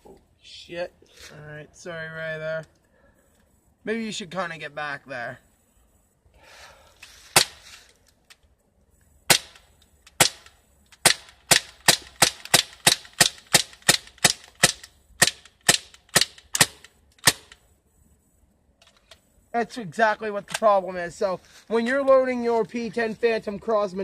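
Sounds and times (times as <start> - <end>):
air pistol firing sharp pops: 7.3 - 7.6, 9.3 - 17.6.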